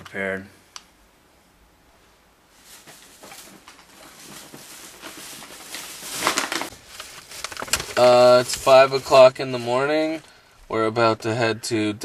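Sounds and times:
rustling and crinkling handling: 0:02.5 - 0:10.4.

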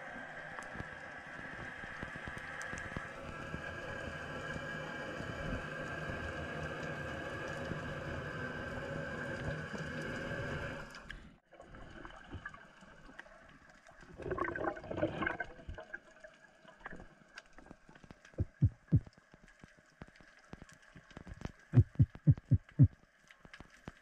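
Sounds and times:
underwater drone with low hum: 0:00.0 - 0:24.0
gurgling burst of bubbles: 0:14.1 - 0:16.0.

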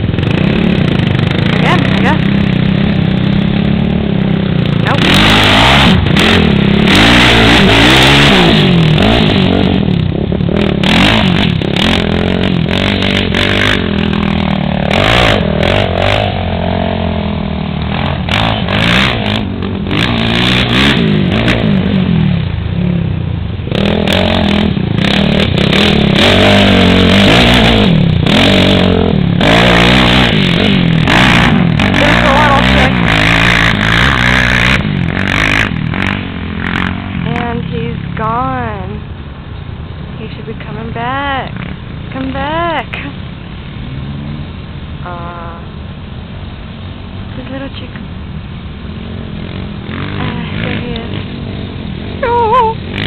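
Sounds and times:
quad engine revving: 0:00.0 - 0:39.1, 0:48.8 - 0:53.0.

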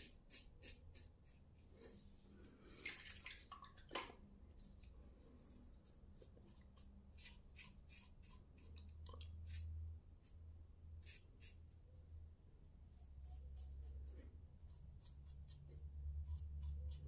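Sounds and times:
razor scraping stubble: 0:00.0 - 0:01.4, 0:05.5 - 0:10.4, 0:11.0 - 0:11.7.

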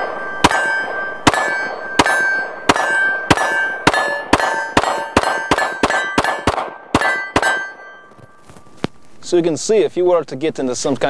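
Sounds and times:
pistol gunshots: 0:00.0 - 0:08.0
steel target ringing: 0:00.0 - 0:08.8.

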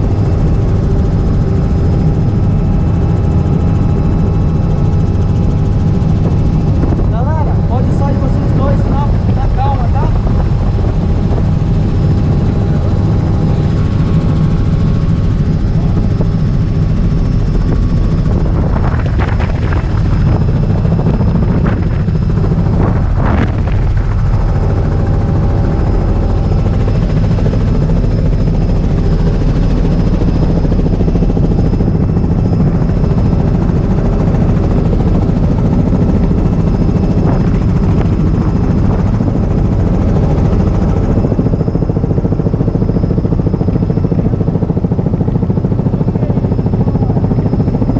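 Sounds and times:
helicopter rotor and engine: 0:00.0 - 0:47.9
wind: 0:00.0 - 0:47.9.

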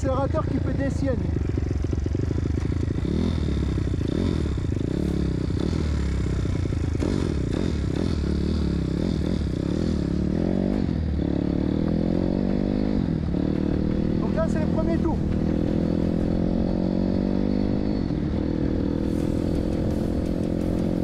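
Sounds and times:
motorbike engine revving: 0:00.0 - 0:21.0.

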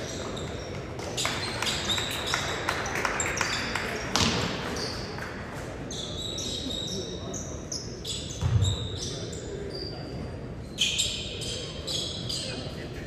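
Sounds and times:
sneaker squeaks: 0:00.0 - 0:12.8
voices chattering: 0:00.0 - 0:13.0
basketballs bouncing on wood floor: 0:04.1 - 0:04.5.

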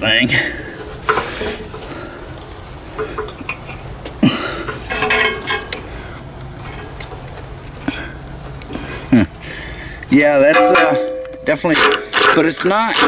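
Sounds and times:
metal parts clinking and scraping: 0:04.6 - 0:05.9, 0:06.6 - 0:07.4, 0:10.4 - 0:13.0.

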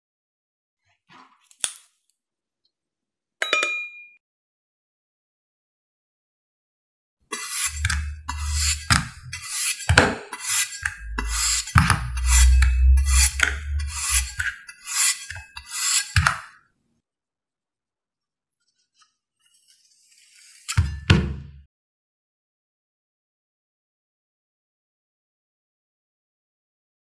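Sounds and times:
low rumble: 0:07.8 - 0:09.4, 0:10.9 - 0:14.4.

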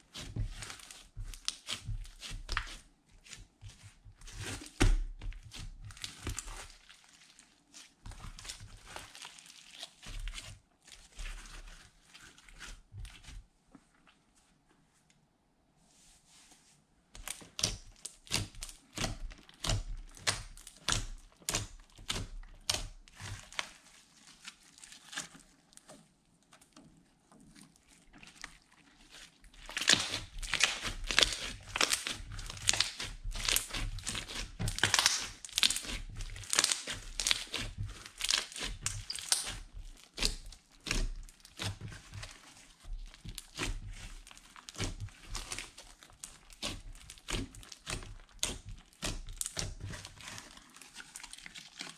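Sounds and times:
slime popping and crackling: 0:00.1 - 0:02.8, 0:17.2 - 0:25.9, 0:27.5 - 0:51.9.

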